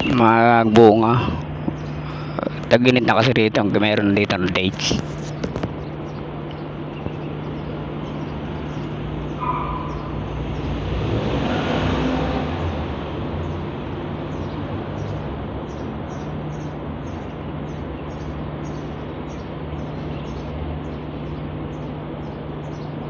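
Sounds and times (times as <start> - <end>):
street traffic hum: 0.0 - 23.0
vehicle passing: 7.7 - 17.7.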